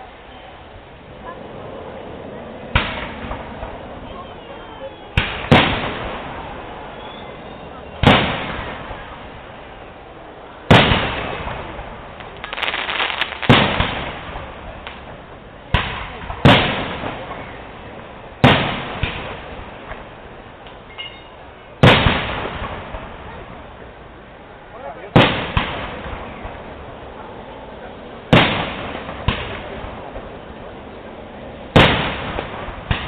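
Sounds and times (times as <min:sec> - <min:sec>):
firework bangs with rolling echo: 0:02.6 - 0:04.0, 0:05.2 - 0:07.0, 0:08.0 - 0:09.6, 0:10.6 - 0:20.4, 0:21.8 - 0:23.9, 0:25.1 - 0:27.3, 0:28.2 - 0:30.8, 0:31.6 - 0:33.0
crackling firework pops: 0:02.8 - 0:03.8, 0:05.2 - 0:06.5, 0:08.0 - 0:09.2, 0:10.7 - 0:17.6, 0:18.4 - 0:20.8, 0:21.8 - 0:23.6, 0:25.2 - 0:26.6, 0:28.3 - 0:30.4, 0:31.8 - 0:33.0.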